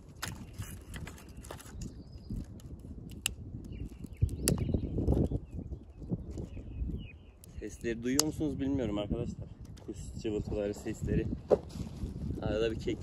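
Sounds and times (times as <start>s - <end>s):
twigs snapping: 0.0s - 5.4s, 7.4s - 8.6s
wind buffeting microphone: 0.0s - 13.0s.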